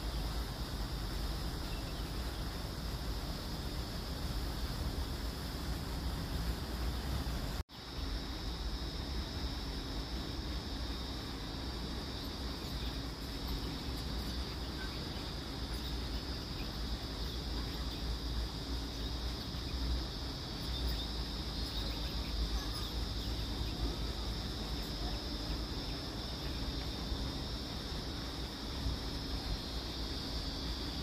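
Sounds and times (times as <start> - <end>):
high-pitched insect chorus: 0.0 - 31.0.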